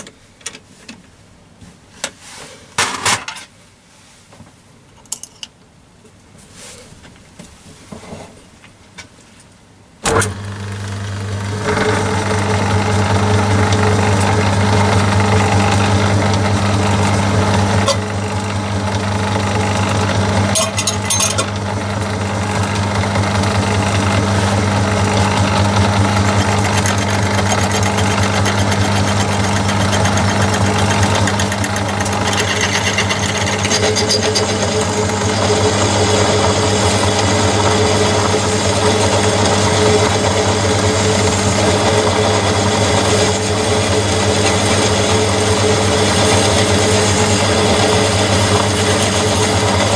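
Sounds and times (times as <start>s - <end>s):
drill cutting metal: 10.0s - 49.9s
lathe motor humming: 10.0s - 49.9s.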